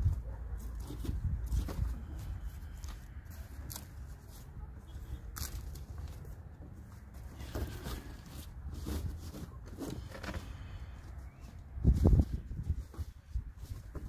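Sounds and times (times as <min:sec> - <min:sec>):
cardboard rustling and scraping: 0:00.0 - 0:14.0.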